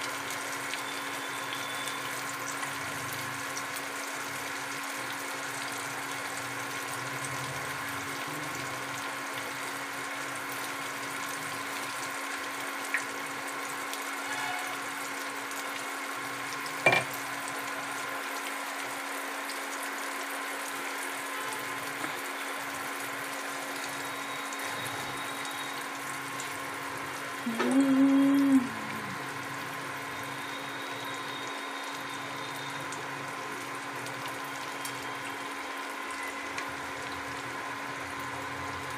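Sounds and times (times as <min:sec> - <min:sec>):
hot oil sizzling: 0:00.0 - 0:38.9
short pitched tone: 0:16.9 - 0:17.1.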